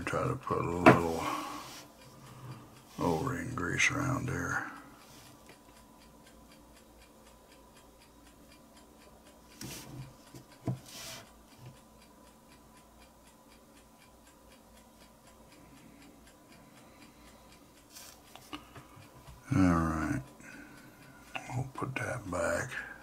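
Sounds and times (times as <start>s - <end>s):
faint even ticking: 0.0s - 23.0s.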